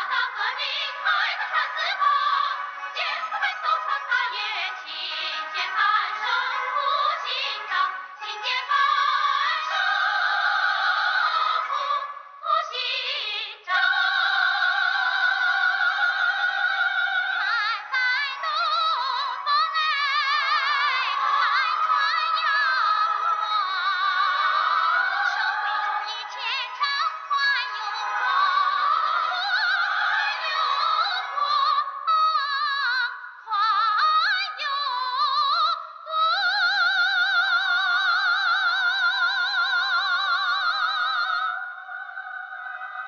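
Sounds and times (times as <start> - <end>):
operatic high singing: 0.0 - 43.0.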